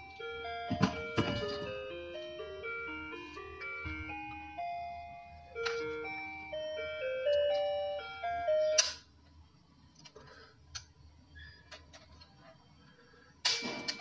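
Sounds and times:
toy playing beeping melody: 0:00.0 - 0:09.0.

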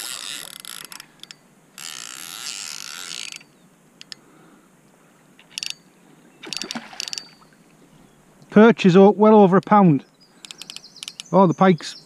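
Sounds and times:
fishing reel ratcheting: 0:00.0 - 0:04.2, 0:05.5 - 0:05.8, 0:06.5 - 0:07.3.

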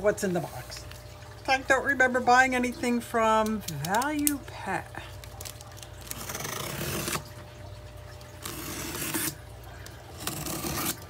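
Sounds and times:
packing tape tearing: 0:05.2 - 0:07.3.

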